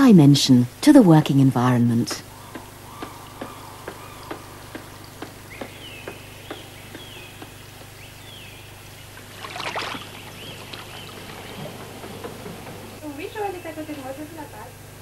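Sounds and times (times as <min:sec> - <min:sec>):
low steady hum: 0:00.0 - 0:15.0
high falling chirp: 0:02.2 - 0:08.9
fish splashing water: 0:02.4 - 0:07.8, 0:09.1 - 0:12.5.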